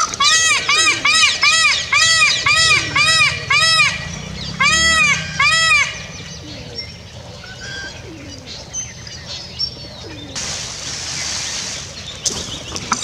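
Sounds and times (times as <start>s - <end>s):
pigeons cooing: 0.0s - 13.0s
small birds chirping: 0.0s - 13.0s
rustling hiss: 10.3s - 13.0s.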